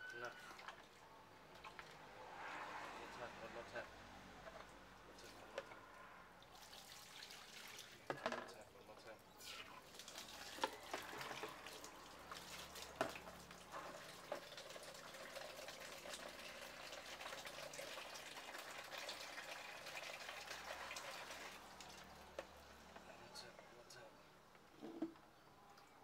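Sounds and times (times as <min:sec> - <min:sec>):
tap water pouring into basin: 0:00.1 - 0:02.0, 0:06.4 - 0:22.8.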